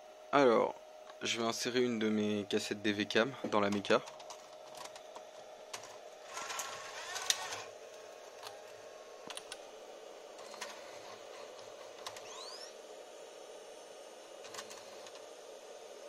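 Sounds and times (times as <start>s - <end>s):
cooling fan hum: 0.0s - 16.0s
motor whir: 5.7s - 9.7s, 10.3s - 15.7s.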